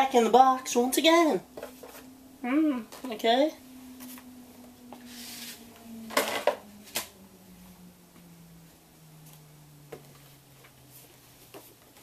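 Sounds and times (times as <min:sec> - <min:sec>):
rustle: 0:03.8 - 0:07.2.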